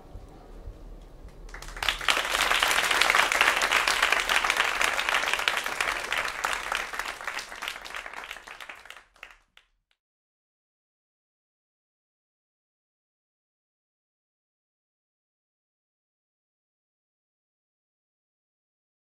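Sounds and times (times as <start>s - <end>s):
audience applauding: 1.5s - 9.7s.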